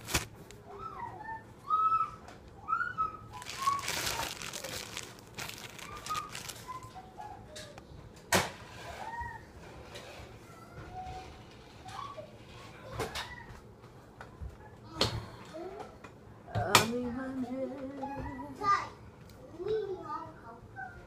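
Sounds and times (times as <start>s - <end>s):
rustling: 0.0s - 0.6s, 3.3s - 6.9s.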